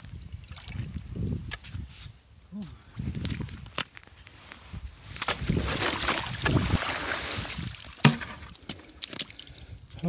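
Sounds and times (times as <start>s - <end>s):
water sloshing: 5.2s - 9.6s.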